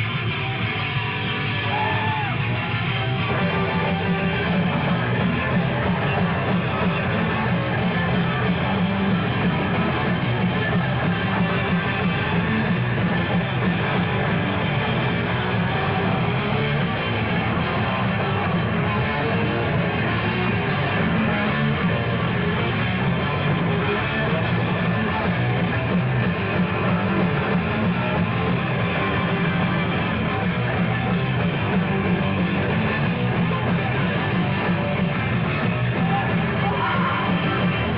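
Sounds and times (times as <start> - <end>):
hardcore punk rock music: 0.0 - 37.9.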